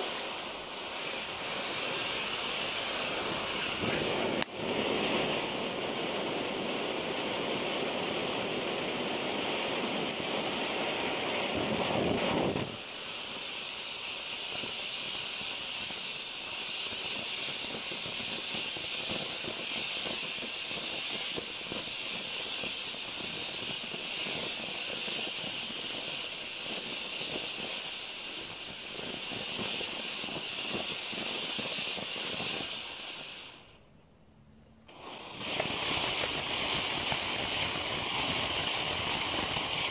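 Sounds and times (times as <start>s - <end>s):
firework fountain hissing sparks: 0.0s - 33.8s, 34.9s - 39.9s.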